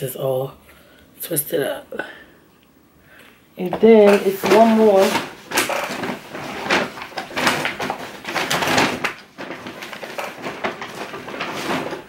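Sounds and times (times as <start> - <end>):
items rustling and clattering: 3.6 - 12.0.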